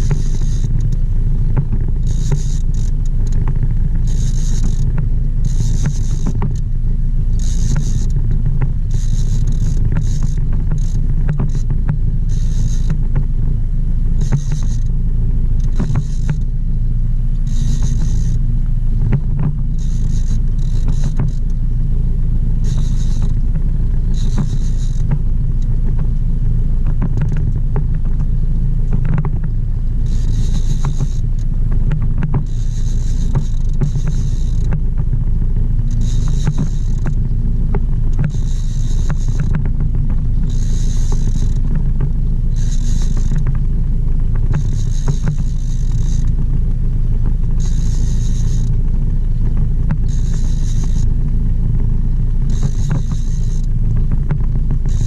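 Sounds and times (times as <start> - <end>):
outboard motor running: 0.0 - 55.0
high-pitched whirring bursts: 24.1 - 25.1, 44.5 - 46.3, 49.9 - 51.1, 52.5 - 53.7.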